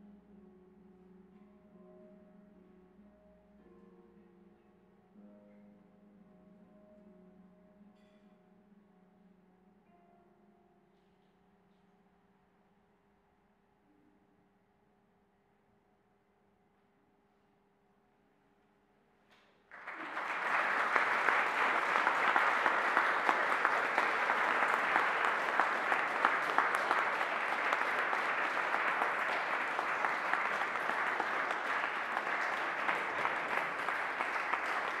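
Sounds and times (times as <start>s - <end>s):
audience applauding: 19.7s - 35.0s.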